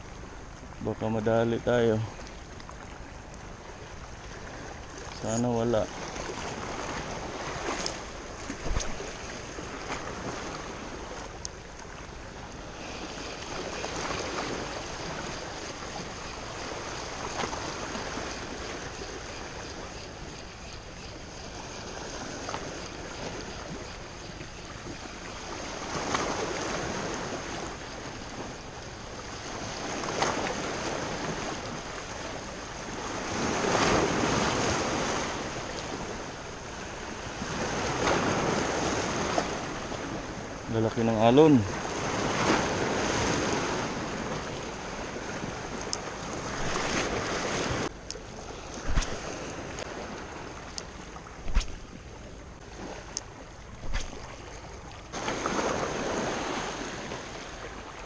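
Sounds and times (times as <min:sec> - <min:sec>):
sea waves washing on shore: 0:00.0 - 0:58.0
wind buffeting microphone: 0:48.6 - 0:52.1.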